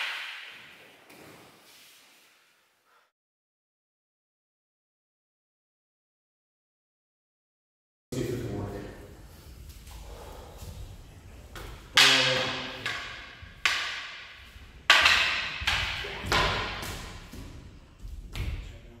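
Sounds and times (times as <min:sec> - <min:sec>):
wooden swords clacking: 0:00.0 - 0:01.4, 0:11.5 - 0:18.6.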